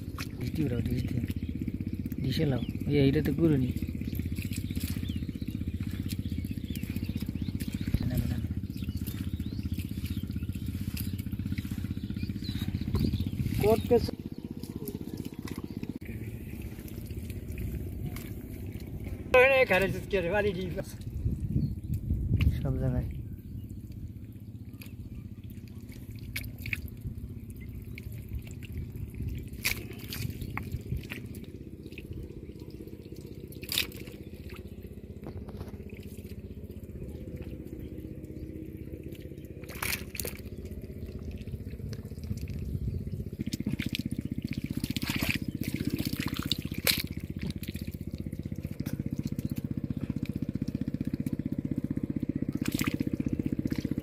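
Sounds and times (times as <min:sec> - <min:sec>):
water dripping and splashing: 0:00.0 - 0:54.0
wet mud squelching: 0:00.0 - 0:54.0
sharp splats: 0:03.2 - 0:19.0, 0:25.8 - 0:36.8, 0:39.0 - 0:51.4, 0:52.5 - 0:54.0.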